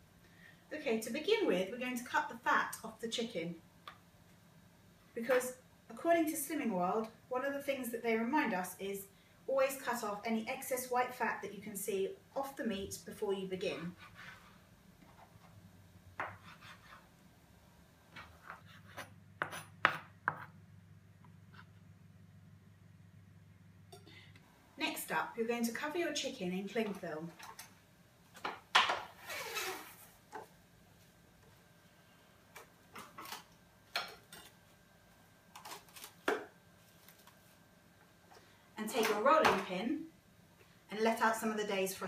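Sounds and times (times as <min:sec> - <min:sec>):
faint low hum: 0:00.0 - 0:42.0
knife tapping and scraping on board: 0:16.2 - 0:17.0, 0:18.2 - 0:20.6.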